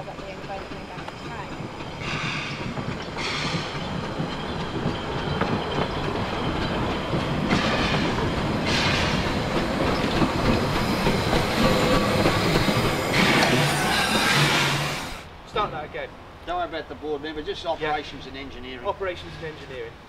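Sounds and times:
train wheels clicking over rails: 0.0 - 15.3
steam hissing: 0.3 - 15.3.

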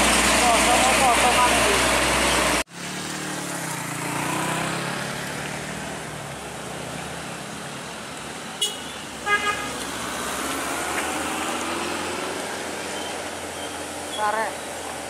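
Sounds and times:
truck diesel engine pulling uphill: 0.0 - 9.2
double horn toot: 8.6 - 9.8.

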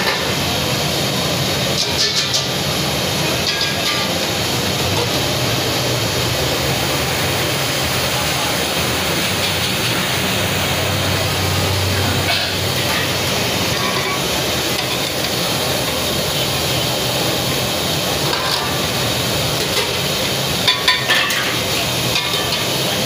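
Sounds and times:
steady rushing noise: 2.6 - 21.2
metal pots clinking: 3.3 - 4.3, 12.2 - 15.4, 18.2 - 18.9, 19.6 - 23.0.

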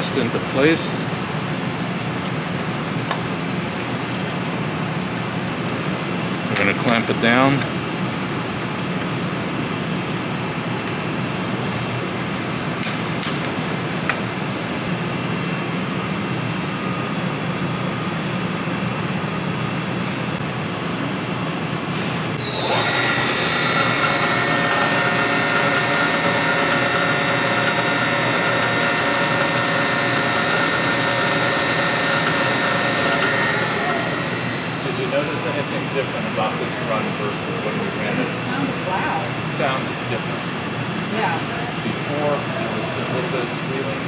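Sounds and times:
motor whine: 22.3 - 36.5
lab hum: 22.4 - 36.6.

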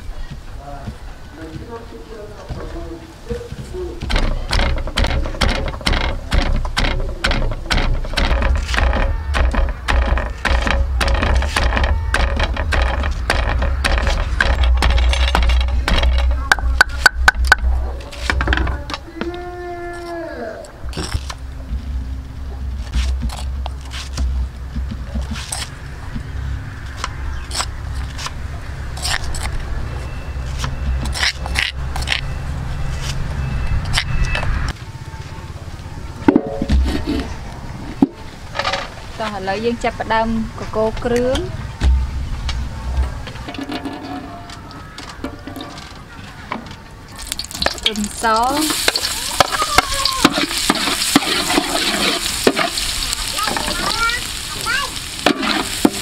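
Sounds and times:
utensil scraping stone mortar: 4.0 - 17.1, 47.6 - 54.0
low steady rumble: 20.6 - 33.7
garlic sizzling in hot oil: 47.2 - 56.0.

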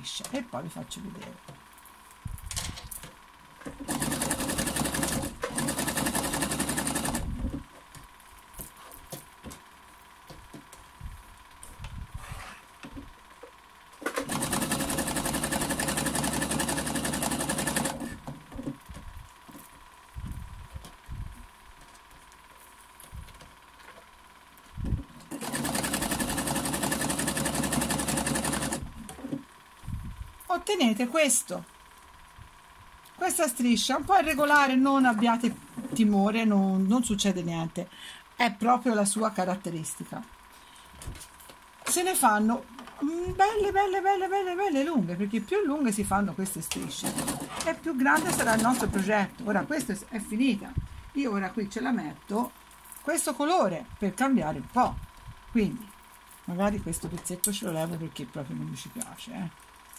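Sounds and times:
sewing machine running: 3.8 - 7.4, 14.1 - 18.2, 25.3 - 29.0, 46.8 - 49.3.

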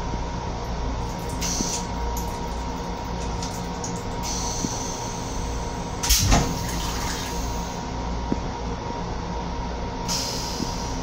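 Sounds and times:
railcar rumble: 0.0 - 11.0
rinse water hissing: 1.1 - 2.5
toilet flushing whoosh: 3.3 - 7.9.

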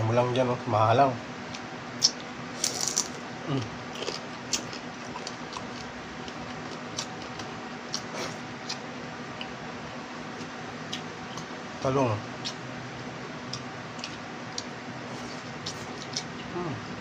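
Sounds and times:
low steady hum: 0.0 - 17.0
person chewing and sucking: 2.0 - 9.6, 13.4 - 16.8.

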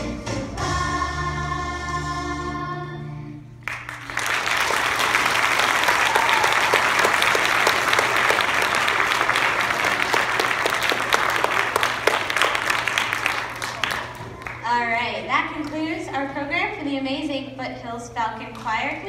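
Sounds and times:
children's choir singing: 0.0 - 3.4
audience applause: 3.6 - 14.7.

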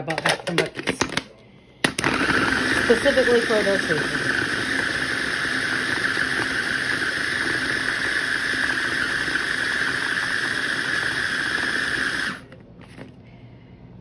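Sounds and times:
food processor chopping: 1.8 - 12.5.

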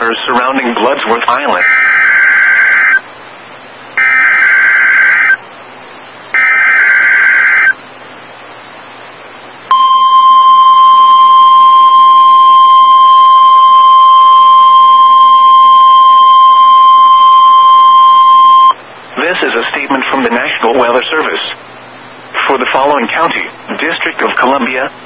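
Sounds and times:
steady alarm tone: 1.6 - 3.0, 4.0 - 5.4, 6.3 - 7.8, 9.7 - 18.8
buzzy digital data bursts: 3.9 - 5.4, 6.3 - 7.8.

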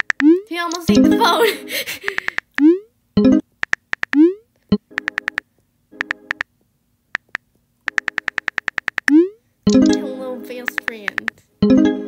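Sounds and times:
rapid keyboard typing clicks: 0.0 - 1.0, 2.0 - 2.7, 3.6 - 5.4, 6.0 - 6.5, 7.1 - 11.4.

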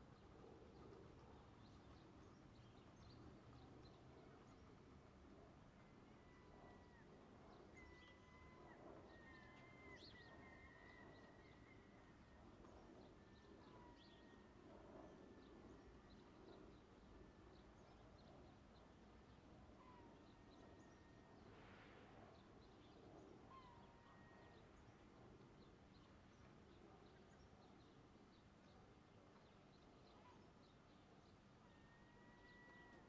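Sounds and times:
faint outdoor background noise: 0.0 - 33.0.

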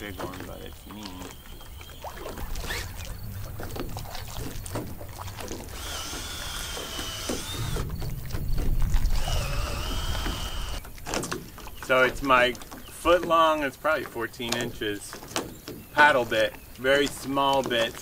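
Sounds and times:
water splashing: 0.0 - 18.0
low rumble: 2.2 - 10.8
cordless drill whirring: 5.7 - 7.8, 9.1 - 10.8.

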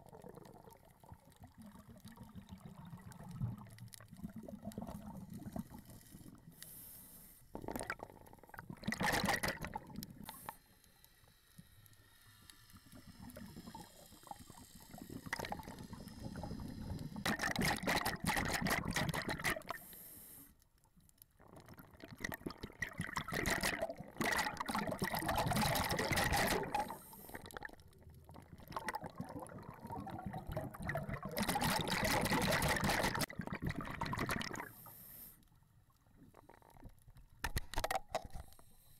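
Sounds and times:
underwater water noise: 0.0 - 38.9
diver's exhaled bubbles rushing: 7.7 - 10.0, 17.2 - 19.8, 21.5 - 34.7.

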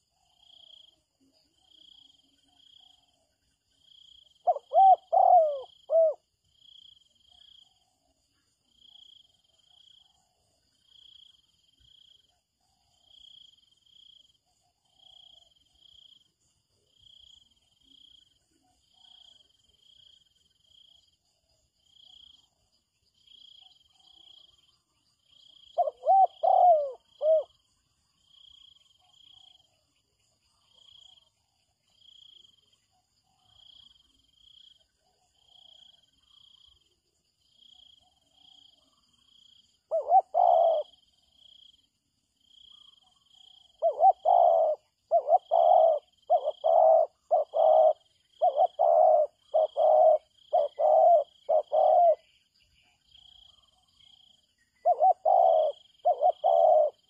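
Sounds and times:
dove cooing: 4.2 - 6.2, 25.5 - 27.6, 39.9 - 41.1, 42.7 - 52.3, 54.8 - 57.0
faint high chirp: 42.7 - 57.0.

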